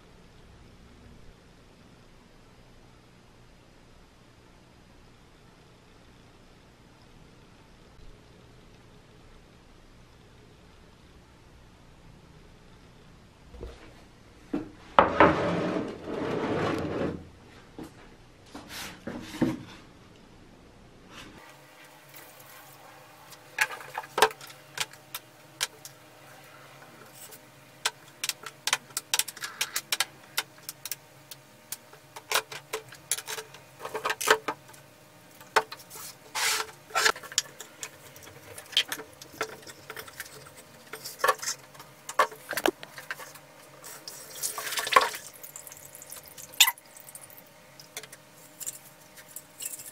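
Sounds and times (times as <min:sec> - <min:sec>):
plastic tub sliding on wooden table: 0:15.0 - 0:17.3.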